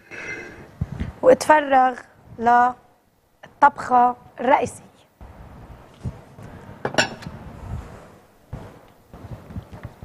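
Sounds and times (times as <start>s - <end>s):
dishes clinking on a counter: 6.9s - 7.3s.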